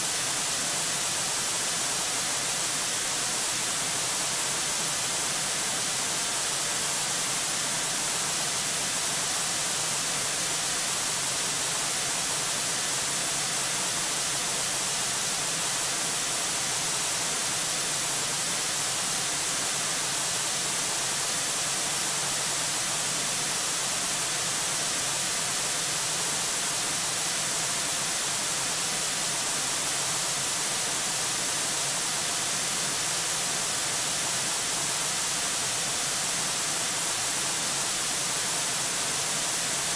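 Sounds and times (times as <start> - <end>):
static hiss: 0.0 - 39.9.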